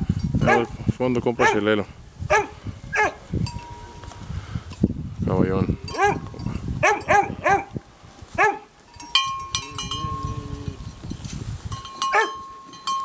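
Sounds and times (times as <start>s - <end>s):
dog barking: 0.4s - 0.7s, 1.4s - 1.6s, 2.3s - 3.2s, 5.9s - 6.2s, 6.8s - 7.7s, 8.4s - 8.7s, 12.1s - 12.4s
metal bell clanking: 3.4s - 4.0s, 8.9s - 13.0s.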